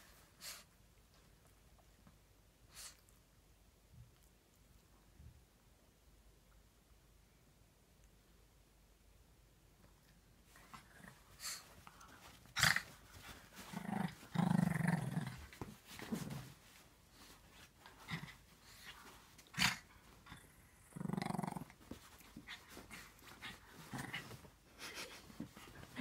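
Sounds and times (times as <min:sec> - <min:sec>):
small dog growling: 0:12.5 - 0:16.5, 0:19.5 - 0:21.8.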